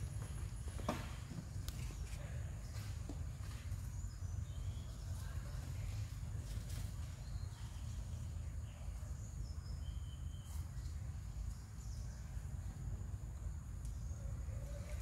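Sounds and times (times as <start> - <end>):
faint bird chirps: 7.2 - 12.4.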